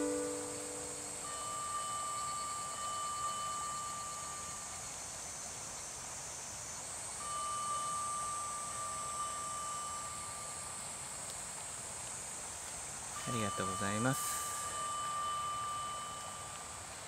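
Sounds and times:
fire engine siren: 0.0s - 1.0s
insects hissing: 0.0s - 17.0s.

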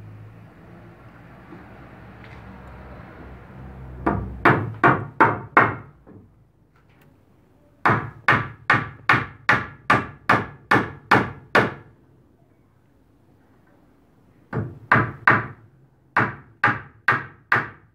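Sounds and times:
hammer striking nail into wood: 4.0s - 5.9s, 7.8s - 11.9s, 14.5s - 15.6s, 16.2s - 17.9s.

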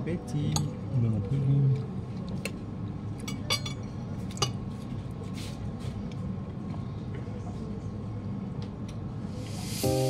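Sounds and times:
cutlery clinking on plate: 3.2s - 4.6s.

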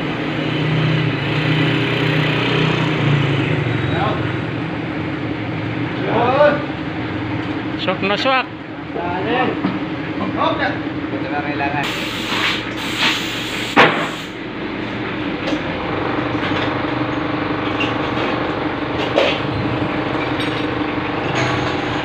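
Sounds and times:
hissing burst: 11.8s - 14.4s
machine drone: 11.8s - 22.0s.

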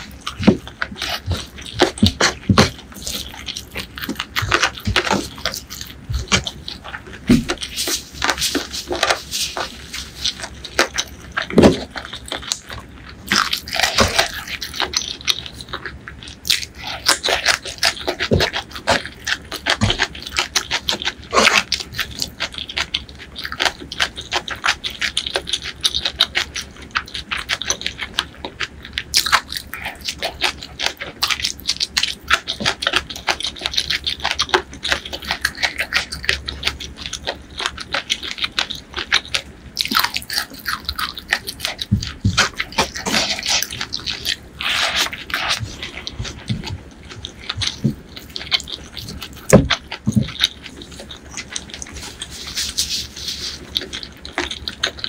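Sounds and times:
crunchy wet chewing: 0.0s - 55.0s.

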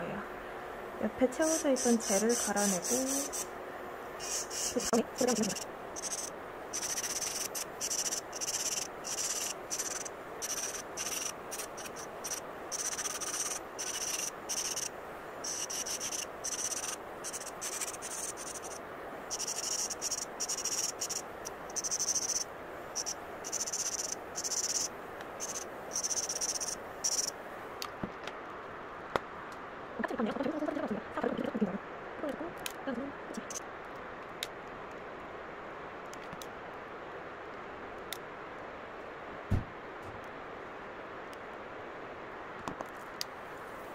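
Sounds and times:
electric nail drill grinding: 1.4s - 3.5s, 4.2s - 22.4s, 23.0s - 27.3s.

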